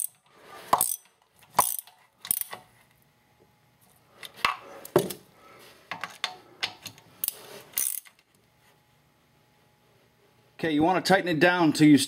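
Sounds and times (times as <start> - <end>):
ratchet wrench clicking: 0.8 - 2.6, 7.2 - 8.2.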